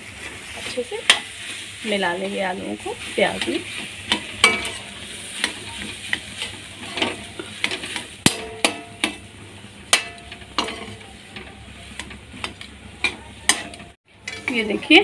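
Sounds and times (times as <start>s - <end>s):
low frying sizzle: 0.0s - 15.0s
metal spoon scraping pan: 2.8s - 9.2s, 9.9s - 15.0s.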